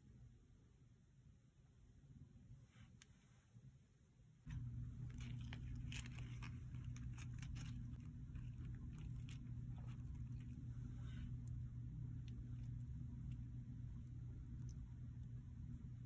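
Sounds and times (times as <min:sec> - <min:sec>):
steady low hum: 0:00.0 - 0:16.0
lettuce leaves crackling: 0:04.5 - 0:10.7.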